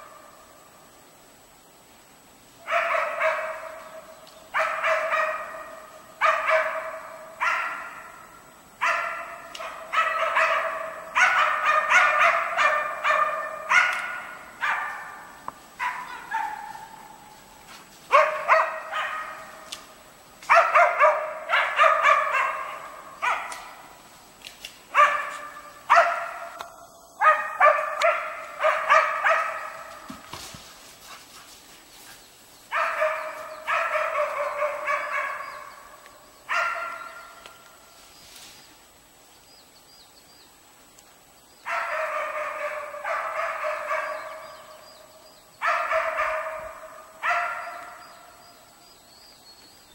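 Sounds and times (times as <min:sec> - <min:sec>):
dogs barking rapidly: 0:04.6 - 0:08.2, 0:08.8 - 0:17.2, 0:18.1 - 0:19.7, 0:20.5 - 0:24.0, 0:24.9 - 0:30.2, 0:32.7 - 0:35.8, 0:36.5 - 0:37.3, 0:41.7 - 0:44.6, 0:45.6 - 0:48.2.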